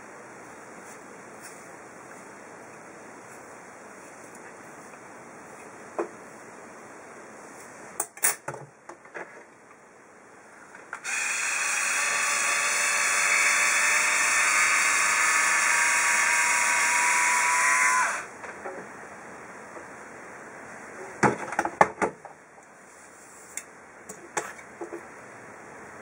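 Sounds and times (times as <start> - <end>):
hair iron motor whirring: 11.0 - 18.3.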